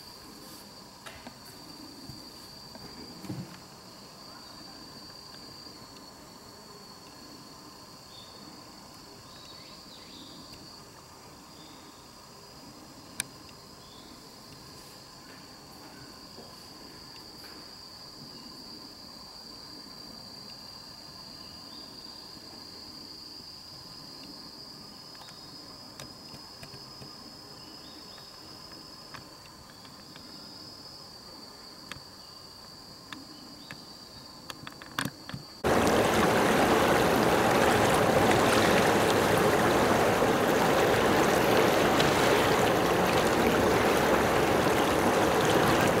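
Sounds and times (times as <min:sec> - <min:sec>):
wind and waves rushing: 0:35.6 - 0:46.0.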